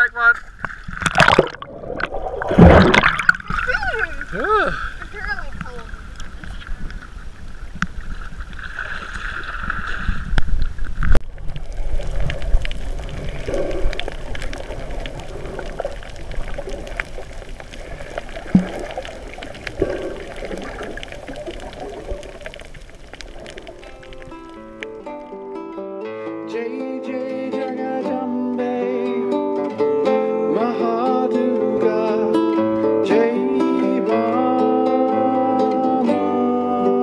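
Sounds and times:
water sloshing: 0:00.2 - 0:25.3
underwater low rumbling: 0:00.4 - 0:25.1
gurgling bubbles: 0:00.6 - 0:04.4, 0:05.3 - 0:24.8
loud splash-thump: 0:02.5 - 0:03.6.

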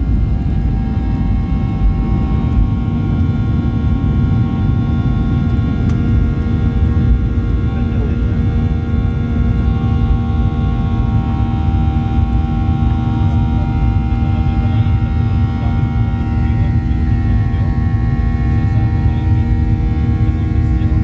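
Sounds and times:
jet engines rumbling in cabin: 0:00.0 - 0:21.0
steady whining tones: 0:00.0 - 0:21.0.

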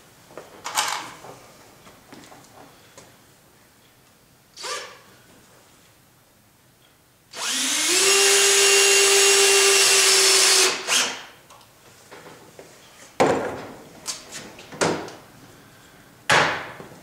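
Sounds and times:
cordless drill whining: 0:07.3 - 0:11.2.

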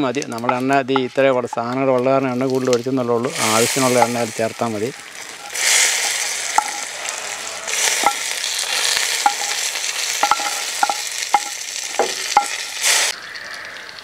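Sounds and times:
hot oil sizzling: 0:00.0 - 0:14.0
spatula knocking metal pan: 0:00.4 - 0:02.0, 0:05.4 - 0:06.9, 0:08.0 - 0:08.4, 0:09.1 - 0:12.8.

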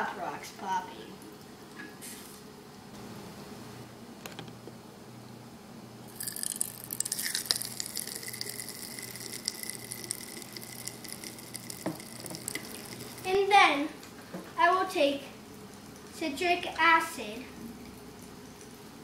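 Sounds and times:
candy popping in water: 0:06.1 - 0:13.4.

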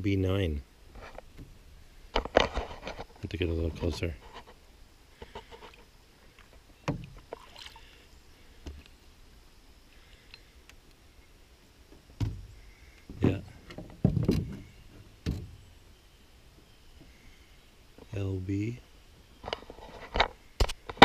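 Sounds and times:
paddle knocking canoe hull: 0:13.1 - 0:15.6.

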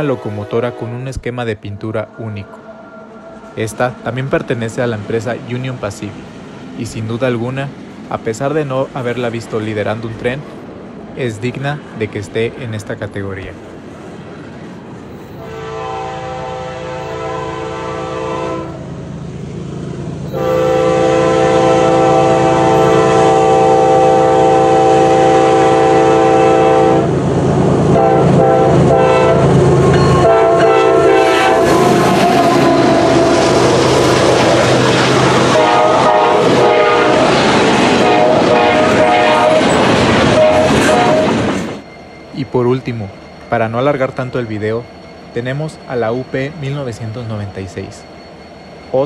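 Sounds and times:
locomotive air horn blasts: 0:00.0 - 0:01.1, 0:15.4 - 0:18.9, 0:20.3 - 0:27.2, 0:27.9 - 0:33.4, 0:35.4 - 0:37.3, 0:38.0 - 0:41.4
freight train rumbling past: 0:00.0 - 0:49.0.

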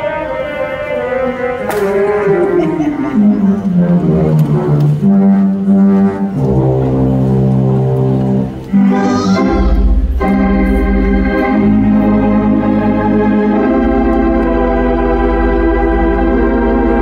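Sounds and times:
pipe organ chords: 0:00.0 - 0:17.0
deep pedal bass notes: 0:04.1 - 0:17.0.

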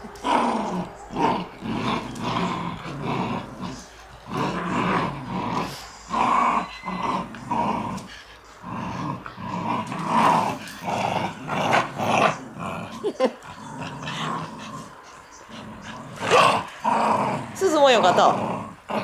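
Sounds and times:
dogs growling in play: 0:00.0 - 0:19.0.

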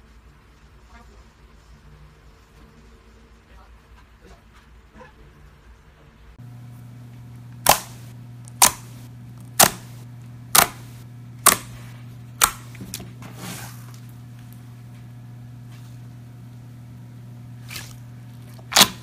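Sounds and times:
low steady hum: 0:05.5 - 0:19.0
slime crackles: 0:17.6 - 0:19.0.

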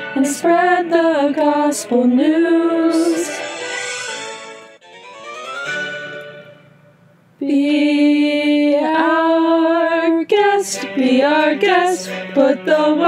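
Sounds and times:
young women singing: 0:00.2 - 0:03.4, 0:07.4 - 0:13.0.

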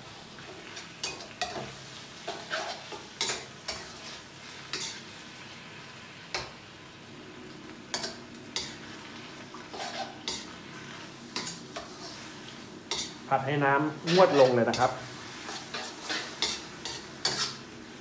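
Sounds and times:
food sizzling in a wok: 0:00.0 - 0:18.0
metal ladle scraping a wok: 0:02.3 - 0:05.0, 0:09.5 - 0:13.2, 0:14.0 - 0:17.6.

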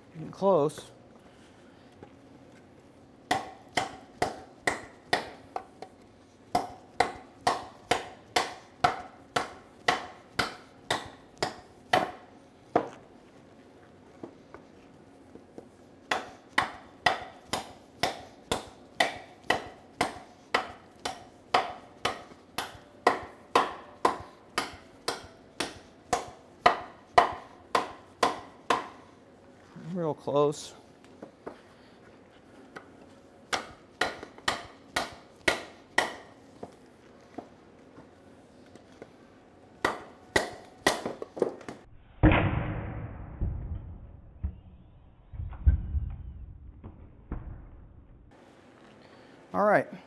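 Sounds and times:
knife chopping into wood: 0:06.5 - 0:12.2, 0:16.1 - 0:29.0, 0:33.5 - 0:36.3, 0:39.8 - 0:41.7.

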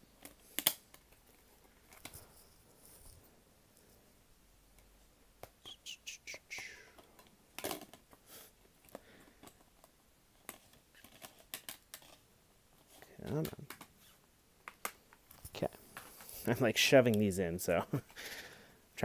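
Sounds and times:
plastic dvd case clicks and creaks: 0:00.2 - 0:02.2, 0:07.0 - 0:08.2, 0:08.8 - 0:12.2, 0:12.9 - 0:16.3.

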